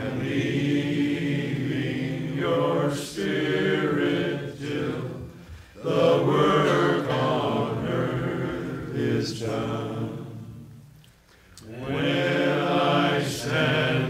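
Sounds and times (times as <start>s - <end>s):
group singing worship song: 0.0s - 14.0s.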